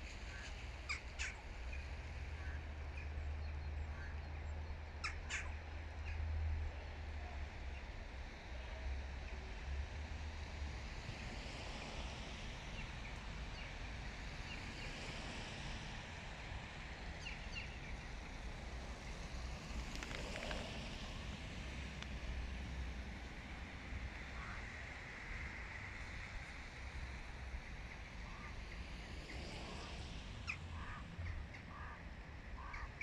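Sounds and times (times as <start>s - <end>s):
crow calling: 5.0s - 5.6s, 30.7s - 32.0s, 32.6s - 33.0s.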